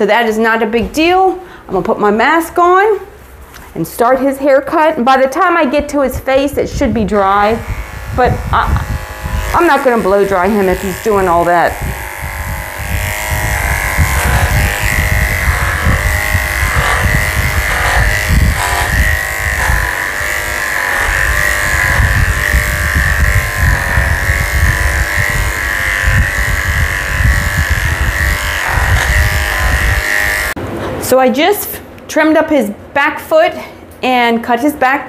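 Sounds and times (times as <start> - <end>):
electric clippers whining: 6.7 - 30.6.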